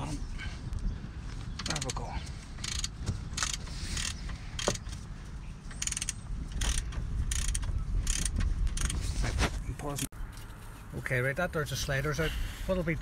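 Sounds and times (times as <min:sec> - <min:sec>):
ratchet clicking: 0:02.6 - 0:04.8, 0:05.8 - 0:09.0.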